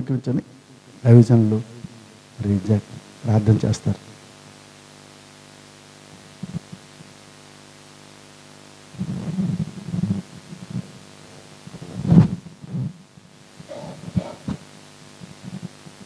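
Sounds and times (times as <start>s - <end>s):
steady electrical hum: 0.0s - 16.0s
microphone handling thumps: 9.0s - 11.0s, 11.6s - 15.8s.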